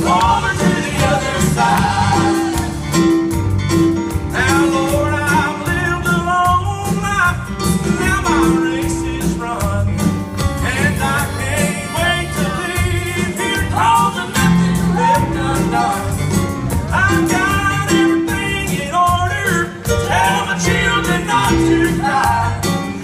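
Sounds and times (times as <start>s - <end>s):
acoustic guitar: 0.0s - 23.0s
keyboard: 0.0s - 23.0s.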